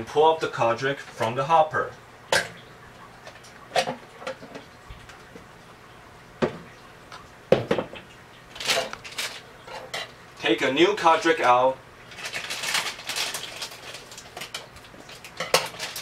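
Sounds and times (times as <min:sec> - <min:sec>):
plastic jug clicks and knocks: 0:07.5 - 0:08.0
scraping rustle: 0:12.1 - 0:16.0.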